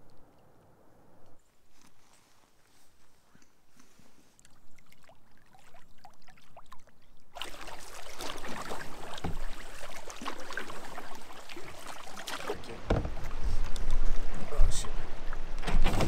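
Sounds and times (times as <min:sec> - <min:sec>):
paddle dipping through water: 0:01.7 - 0:16.0
water splashing: 0:04.3 - 0:16.0
water rushing along hull: 0:04.8 - 0:16.0.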